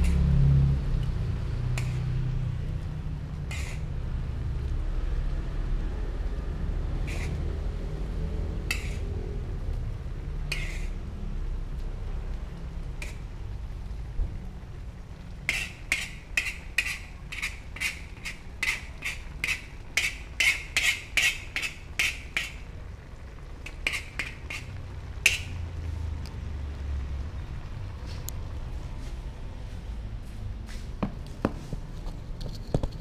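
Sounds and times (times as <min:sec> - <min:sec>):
metal utensil scraping a wok: 0:00.0 - 0:00.8, 0:01.4 - 0:04.1, 0:06.6 - 0:09.6, 0:10.3 - 0:11.3, 0:12.7 - 0:13.4, 0:15.4 - 0:22.8, 0:23.6 - 0:25.7
low steady rumble: 0:00.0 - 0:33.0.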